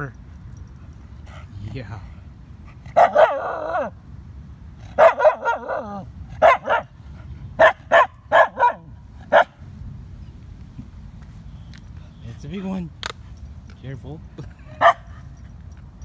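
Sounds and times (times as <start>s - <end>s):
dog barking and yelping: 2.7s - 4.0s, 4.8s - 7.0s, 7.6s - 9.6s, 14.7s - 15.4s.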